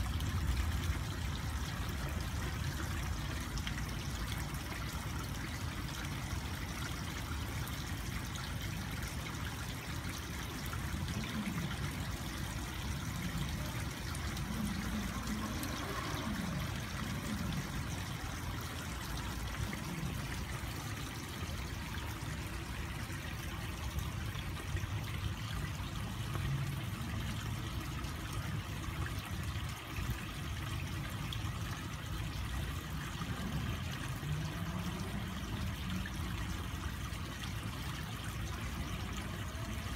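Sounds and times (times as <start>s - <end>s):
water trickling into pond: 0.0s - 39.9s.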